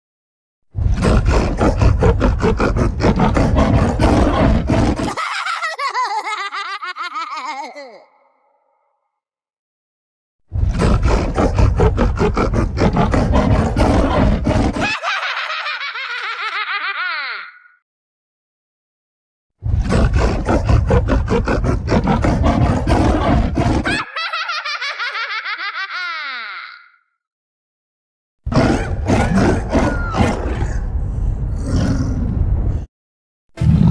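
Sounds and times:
harsh roaring laugh: 0:00.9 - 0:08.7, 0:10.7 - 0:17.8, 0:19.8 - 0:27.0, 0:28.5 - 0:30.9
high-pitched cackle: 0:04.9 - 0:08.3, 0:14.7 - 0:17.8, 0:23.8 - 0:27.0.

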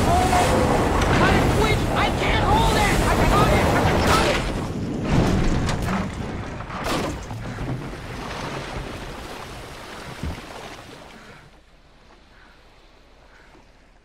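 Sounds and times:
wood cracking and splintering: 0:00.0 - 0:10.6
rushing water: 0:00.0 - 0:14.0.

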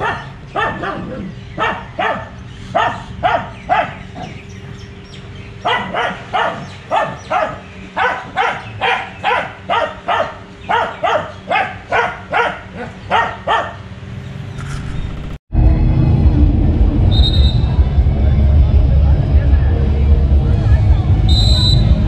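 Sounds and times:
dog barking: 0:00.0 - 0:04.4, 0:05.6 - 0:13.9.

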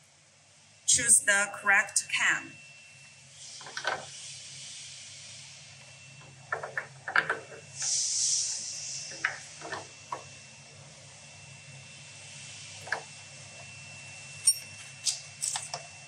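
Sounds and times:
brief hiss: 0:07.8 - 0:09.2.

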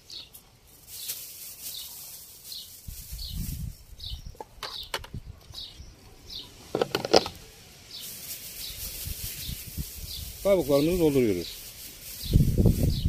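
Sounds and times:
plastic bag crinkling: 0:00.0 - 0:04.0, 0:08.0 - 0:13.0
bird chirping: 0:00.0 - 0:13.0
plastic funnel and jug clicking: 0:06.8 - 0:07.4.

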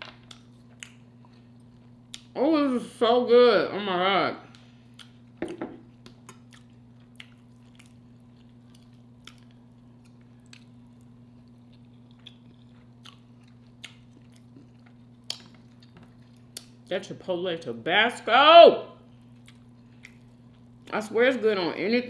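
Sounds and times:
person chewing: 0:00.1 - 0:02.4, 0:04.5 - 0:16.9, 0:19.1 - 0:20.9.

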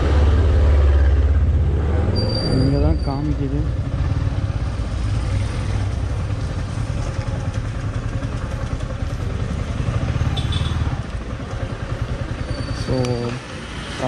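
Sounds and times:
motorcycle engine at low revs: 0:03.3 - 0:14.0.

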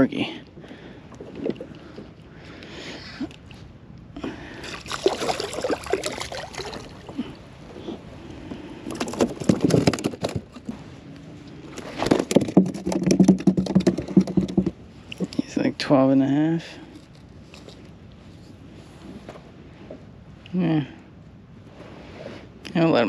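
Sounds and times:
water sloshing: 0:00.0 - 0:15.8
fish flopping on plastic deck: 0:08.8 - 0:10.8, 0:11.7 - 0:14.8.

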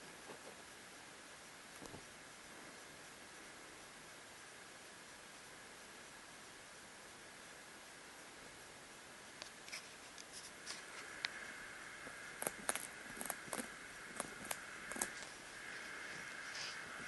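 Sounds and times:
hamster gnawing crunches: 0:09.4 - 0:16.7.

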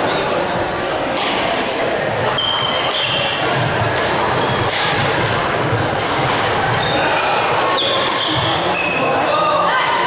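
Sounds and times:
chatter of many voices: 0:00.0 - 0:10.0
shoes squeaking on floor: 0:02.3 - 0:03.4, 0:04.3 - 0:09.2
racket hitting shuttlecock: 0:02.3 - 0:05.4, 0:06.0 - 0:06.8.

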